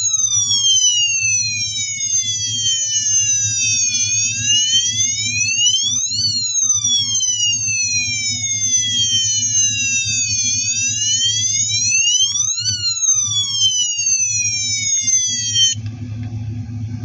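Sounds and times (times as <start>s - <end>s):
toy electronic siren wailing: 0.0s - 15.8s
steady low hum: 0.0s - 17.0s.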